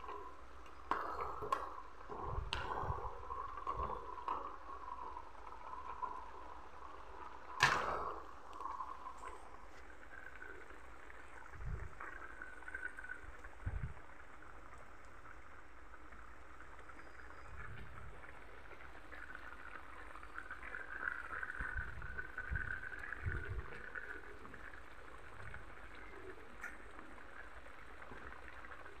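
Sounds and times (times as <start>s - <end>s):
stew bubbling in a wok: 0.0s - 29.0s.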